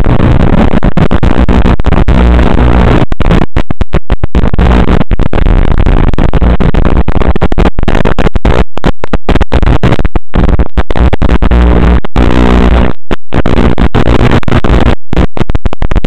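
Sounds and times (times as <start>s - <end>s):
harsh radio static: 0.0s - 16.0s.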